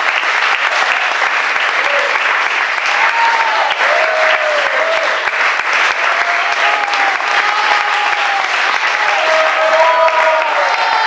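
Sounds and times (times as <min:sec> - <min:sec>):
audience applauding: 0:00.0 - 0:11.0
crowd voices calling out: 0:06.0 - 0:11.0.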